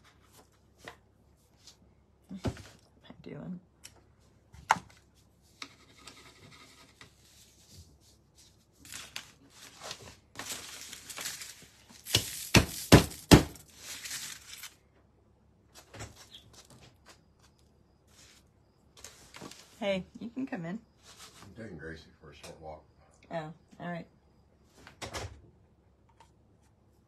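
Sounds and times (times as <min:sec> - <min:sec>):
rustling handling noises: 0:07.1 - 0:14.8, 0:15.7 - 0:19.8.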